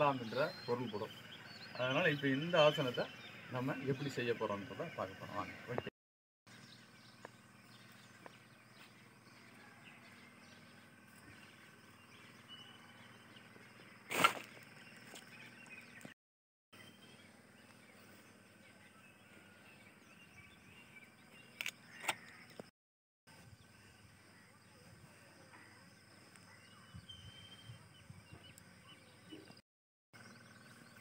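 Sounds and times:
faint bird chirps: 0:06.5 - 0:16.1, 0:23.4 - 0:29.6.

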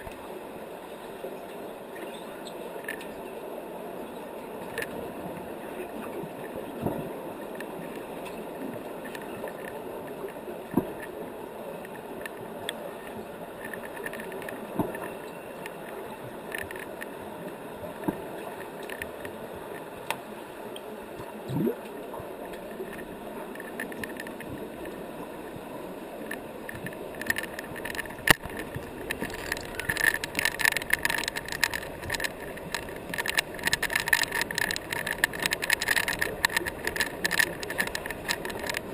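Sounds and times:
underwater knocks and clicks: 0:06.7 - 0:11.2, 0:11.8 - 0:17.2, 0:21.2 - 0:25.3, 0:26.2 - 0:38.9
dense crackling of clicks: 0:13.5 - 0:17.2, 0:21.6 - 0:38.9.

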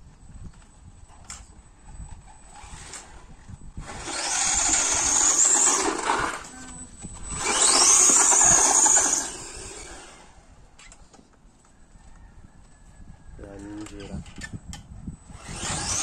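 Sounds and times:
electric motor whining: 0:00.6 - 0:11.0, 0:15.2 - 0:16.0.

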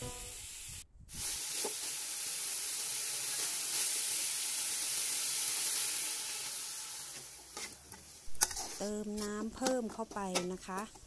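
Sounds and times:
meat sizzling in a pot: 0:00.0 - 0:10.9
ladle stirring: 0:07.5 - 0:11.0.

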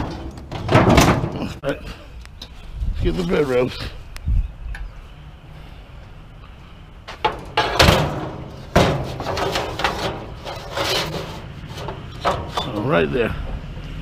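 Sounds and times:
metal rails clanking: 0:00.0 - 0:01.6, 0:07.1 - 0:13.6
metal rattling and scraping: 0:00.0 - 0:01.6, 0:07.1 - 0:13.7.

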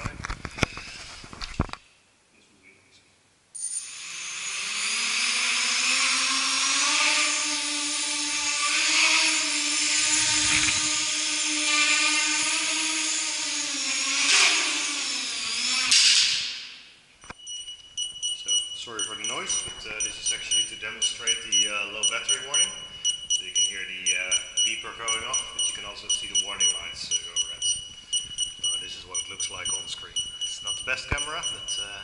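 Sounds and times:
quadcopter motors buzzing whine: 0:03.8 - 0:16.7, 0:18.4 - 0:32.0.

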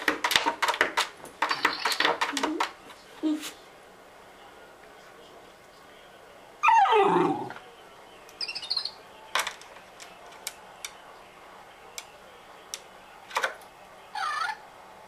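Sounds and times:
claws clicking on plastic basket: 0:00.0 - 0:02.8
dog whining: 0:06.6 - 0:07.6, 0:14.1 - 0:14.6
toy electronic chirping: 0:08.4 - 0:09.0.

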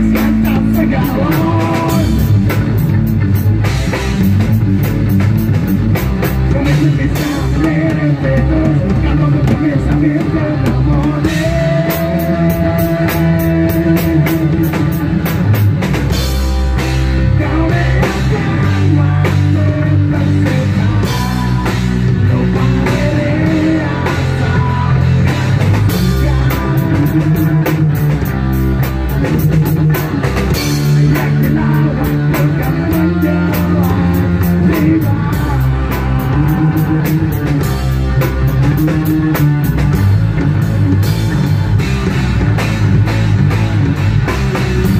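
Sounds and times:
bass guitar: 0:00.0 - 0:44.9
drum kit fast rhythm: 0:00.0 - 0:44.9
electric guitars: 0:00.0 - 0:44.9.

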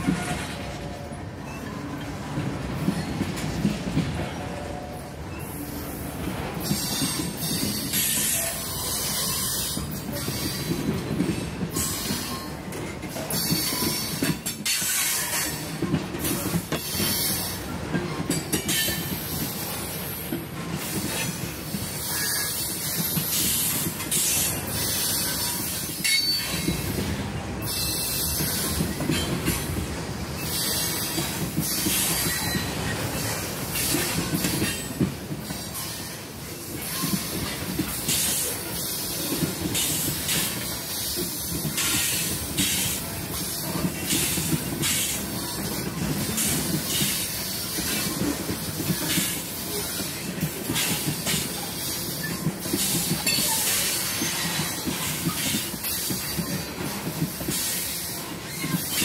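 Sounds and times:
train cars clattering over rails: 0:00.0 - 0:59.0
steel wheels squealing: 0:30.4 - 0:39.0, 0:57.5 - 0:59.0.

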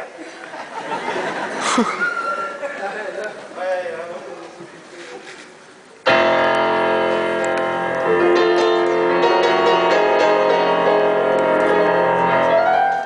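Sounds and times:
keyboard chords and notes: 0:06.1 - 0:13.0.

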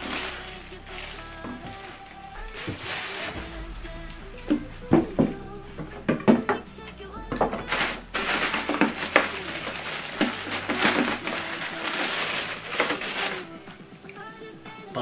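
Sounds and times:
plastic bags crinkling: 0:00.0 - 0:03.5, 0:07.3 - 0:13.6.

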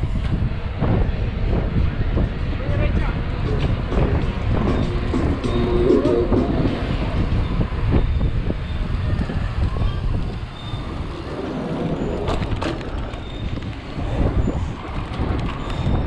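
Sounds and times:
wind buffeting microphone: 0:00.0 - 0:16.0
bike rattling on paving: 0:06.8 - 0:16.0.

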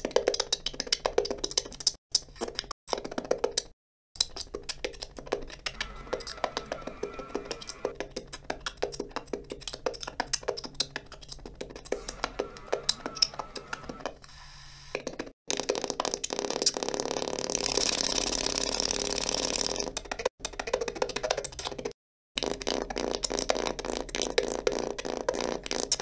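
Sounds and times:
radio static with crackles: 0:05.8 - 0:07.9.

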